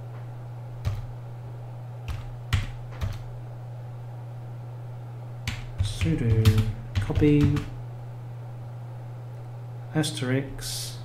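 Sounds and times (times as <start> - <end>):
steady low hum: 0.0 - 11.0
keyboard keystrokes: 0.8 - 1.1, 2.1 - 3.3, 5.4 - 7.8.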